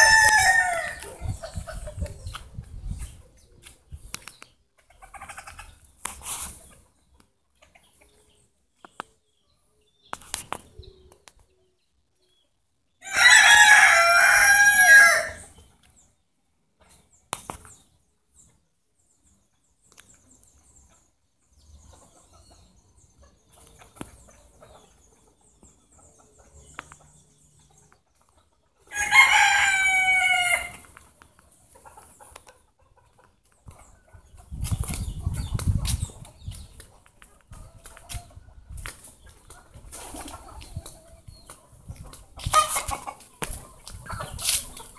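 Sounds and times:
rooster crowing: 0:00.0 - 0:01.1, 0:13.0 - 0:15.4, 0:28.9 - 0:30.7.

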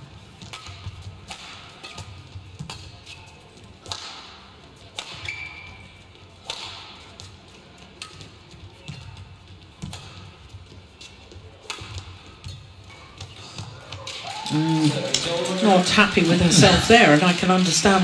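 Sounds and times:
court shoes squeaking: 0:00.0 - 0:14.1, 0:15.6 - 0:18.0
racket hitting shuttlecock: 0:00.4 - 0:03.2, 0:03.8 - 0:07.4, 0:09.8 - 0:10.4, 0:11.0 - 0:14.3.

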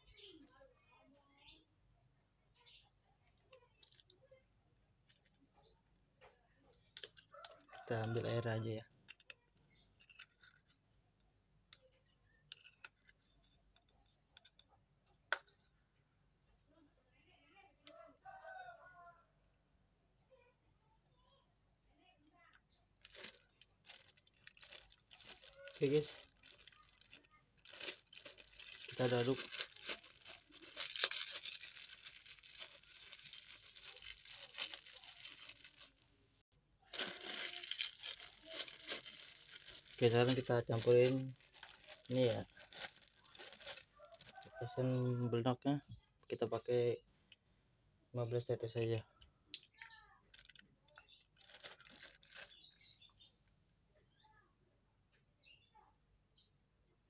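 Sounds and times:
metal spoon stirring in plastic cup: 0:12.4 - 0:14.6, 0:23.1 - 0:36.0, 0:37.0 - 0:43.8
plastic bag crinkling: 0:23.0 - 0:36.1, 0:36.9 - 0:44.7, 0:50.3 - 0:52.7.

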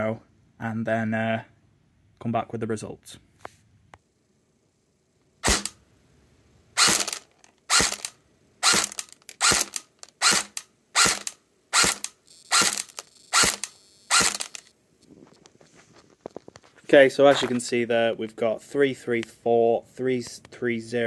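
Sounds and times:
airsoft rifle shots: 0:05.4 - 0:05.8, 0:06.8 - 0:14.6.

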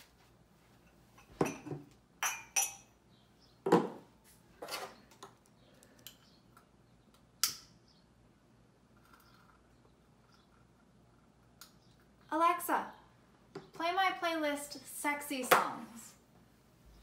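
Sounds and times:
wine glasses clinking on table: 0:01.3 - 0:02.9.

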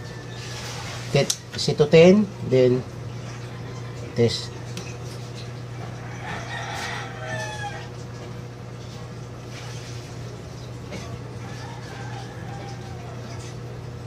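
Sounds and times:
rooster crowing: 0:00.0 - 0:00.9, 0:03.3 - 0:04.8, 0:05.7 - 0:08.0, 0:11.3 - 0:13.9
steady low hum: 0:00.0 - 0:14.0.

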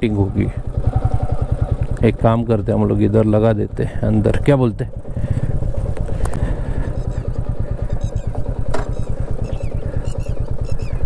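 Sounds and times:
motorcycle engine thumping: 0:04.9 - 0:11.0.

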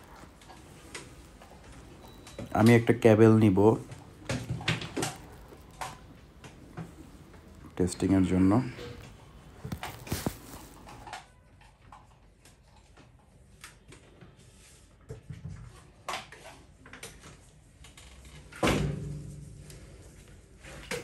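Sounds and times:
objects being handled: 0:00.0 - 0:13.2.

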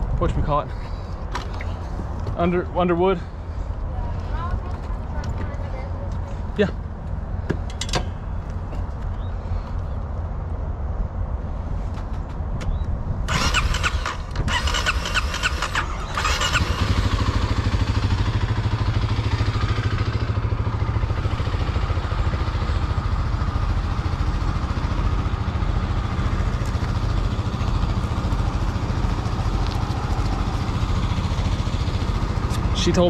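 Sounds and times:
motorcycle engine starting and idling: 0:13.2 - 0:33.0.

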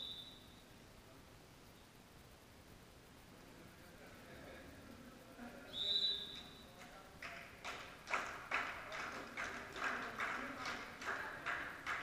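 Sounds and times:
referee's whistle: 0:00.0 - 0:00.6, 0:05.7 - 0:06.8
rhythmic hand claps: 0:06.4 - 0:12.0.

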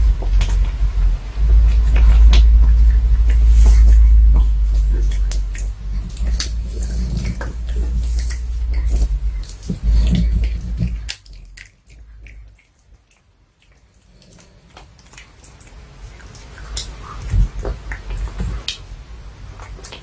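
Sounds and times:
low rumble: 0:00.0 - 0:12.5
dog crunching a bone treat: 0:00.0 - 0:18.9.

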